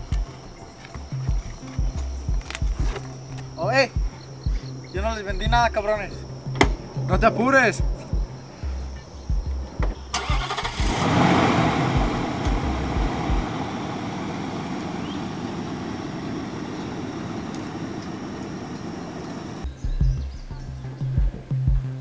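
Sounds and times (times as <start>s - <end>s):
low music beats: 0.0s - 10.1s, 10.8s - 22.0s
car engine starting and running: 9.9s - 19.6s
click: 17.5s - 18.1s.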